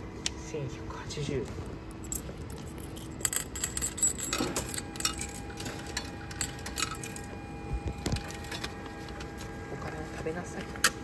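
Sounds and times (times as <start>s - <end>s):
coins clinking into coin slot: 2.0s - 7.3s.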